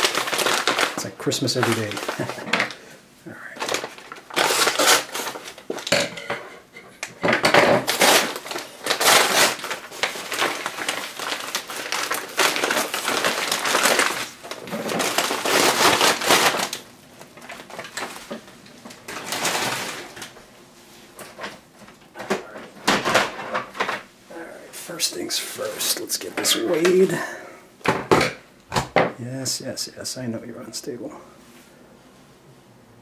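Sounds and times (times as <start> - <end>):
scissors cutting plastic bag: 0.0 - 2.8, 3.6 - 5.9, 7.8 - 16.8
plastic bag crinkling and rustling: 0.0 - 6.0, 7.3 - 24.1, 24.9 - 27.2.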